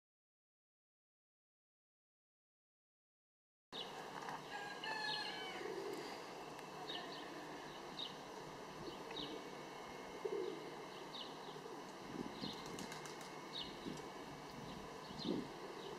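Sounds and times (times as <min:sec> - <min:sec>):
outdoor background hiss: 0:03.8 - 0:15.9.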